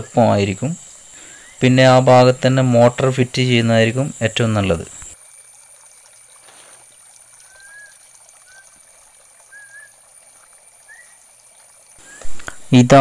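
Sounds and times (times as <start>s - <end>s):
water splashing from pipe into pond: 0.0s - 13.0s
bird chirps: 1.2s - 1.6s, 7.4s - 8.8s, 9.5s - 10.0s, 10.8s - 11.2s.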